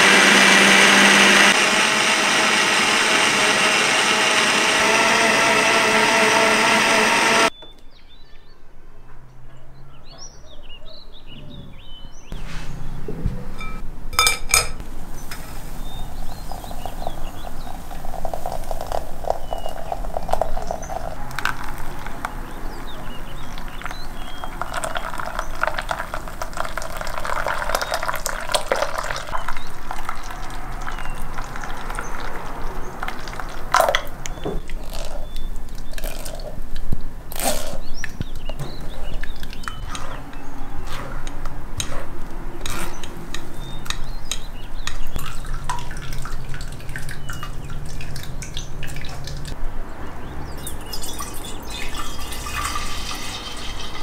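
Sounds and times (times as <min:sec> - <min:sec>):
juice pouring into sieve: 0:15.5 - 0:22.6, 0:23.4 - 0:34.1, 0:50.6 - 0:54.0
juice dripping into bowl: 0:16.1 - 0:36.8, 0:43.8 - 0:49.6, 0:50.6 - 0:54.0.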